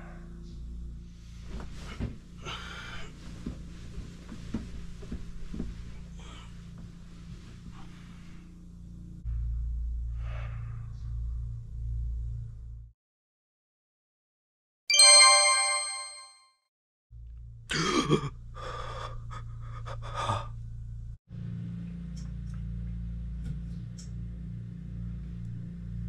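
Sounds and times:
person breathing: 0:02.4 - 0:03.4, 0:10.0 - 0:11.3, 0:18.6 - 0:20.6
bell-like ding: 0:14.9 - 0:16.4.

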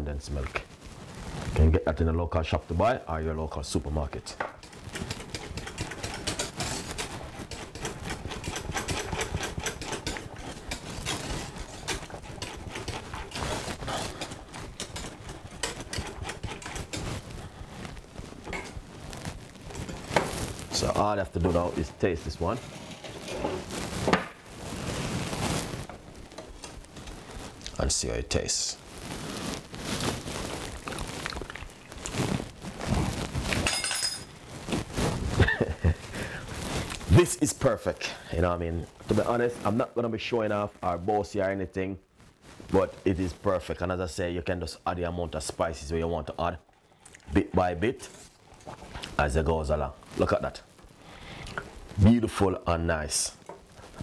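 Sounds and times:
wire whisk beating in metal pot: 0:04.6 - 0:17.2.

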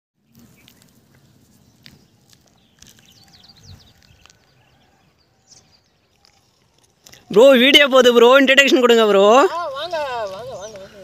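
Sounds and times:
small bird chirping: 0:00.2 - 0:07.5.

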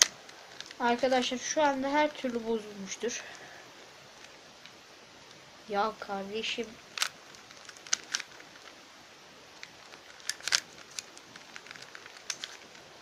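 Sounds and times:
puzzle cube plastic clicks: 0:06.9 - 0:08.8, 0:09.6 - 0:12.9.

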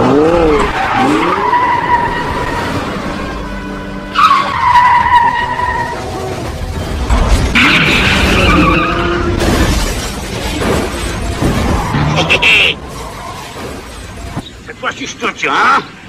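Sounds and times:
car tyres squealing: 0:00.0 - 0:06.6, 0:07.5 - 0:09.8, 0:10.8 - 0:14.6
car crash: 0:04.3 - 0:14.6.

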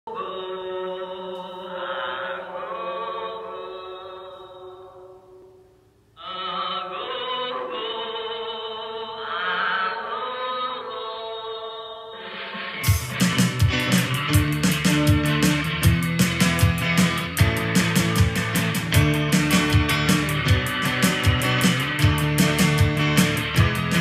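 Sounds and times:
chant-like voices holding notes: 0:00.1 - 0:05.6, 0:06.2 - 0:12.9.

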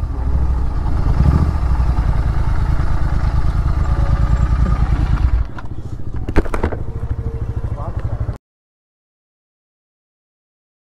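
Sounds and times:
motorcycle engine idling low: 0:00.0 - 0:08.4.

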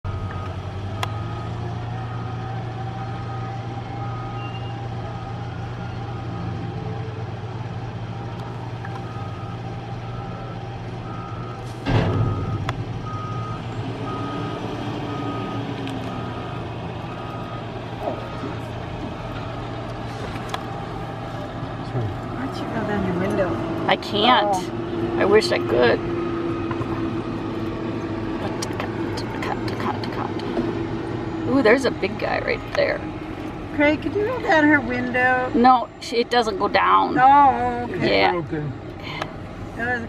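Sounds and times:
low engine hum: 0:00.0 - 0:40.0
vehicle warning beeper: 0:00.1 - 0:07.0, 0:08.2 - 0:19.7, 0:22.2 - 0:27.2, 0:28.4 - 0:30.6, 0:31.2 - 0:33.1
loud thump: 0:11.8 - 0:12.9.

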